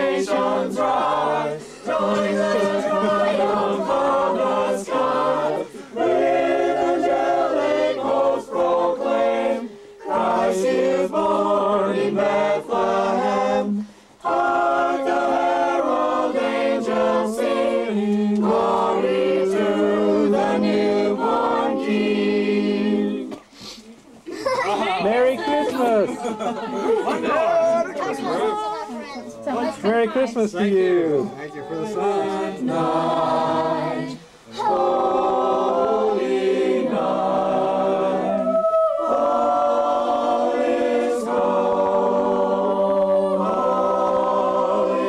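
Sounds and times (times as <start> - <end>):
group singing unaccompanied: 0.0 - 23.6, 24.3 - 45.0.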